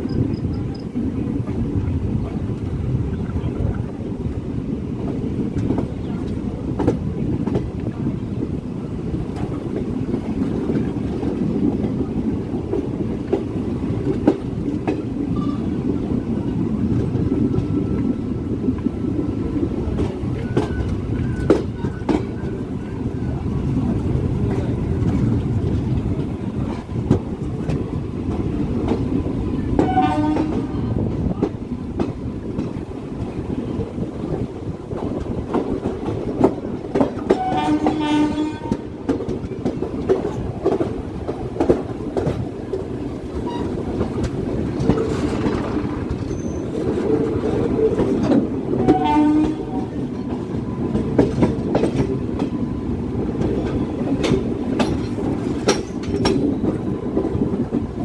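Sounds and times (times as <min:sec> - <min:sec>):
rail-joint clicks: 0:00.0 - 0:01.6, 0:05.0 - 0:08.0, 0:19.8 - 0:33.5, 0:34.9 - 0:58.0
train wheels rumbling: 0:00.0 - 0:58.0
train horn blasts: 0:29.8 - 0:30.8, 0:37.3 - 0:38.8, 0:48.8 - 0:49.9.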